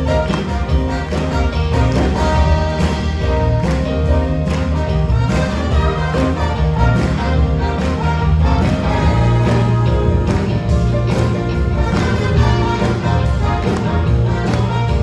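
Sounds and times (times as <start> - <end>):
bass guitar: 0.0 - 15.0
drum beat: 0.0 - 15.0
horn section: 0.0 - 15.0
keyboard: 0.0 - 15.0.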